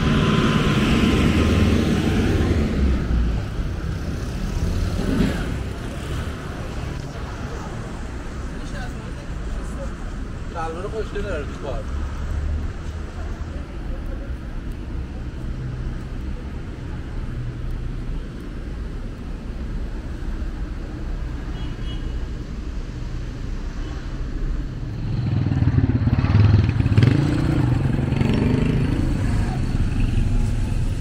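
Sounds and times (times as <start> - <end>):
street traffic rumble: 0.0 - 31.0
vehicle engine passing: 25.0 - 31.0.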